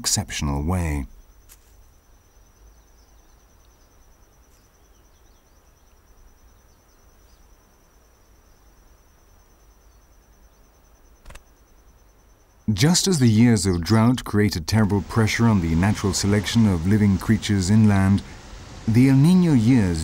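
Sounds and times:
low hiss: 0.0 - 20.0
faint chirps: 0.5 - 20.0
high-pitched insect trill: 1.1 - 13.5.

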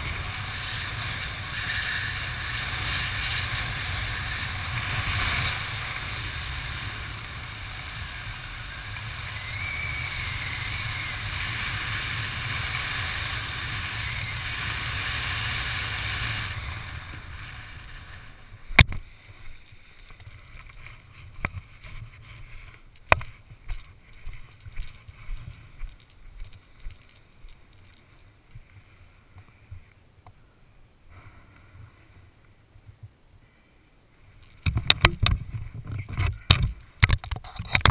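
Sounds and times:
gear knocks and rustles: 18.9 - 28.7
wind noise on microphone: 34.5 - 37.9.

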